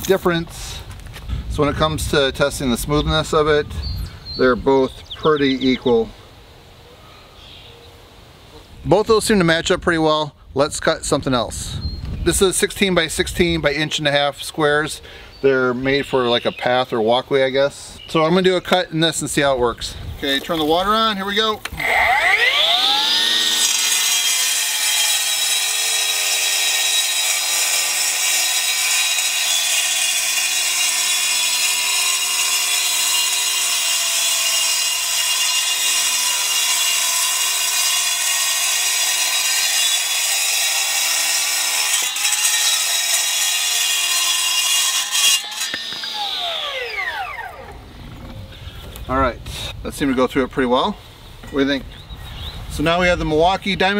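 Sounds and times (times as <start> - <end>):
cutoff saw cutting concrete: 20.2 - 47.8.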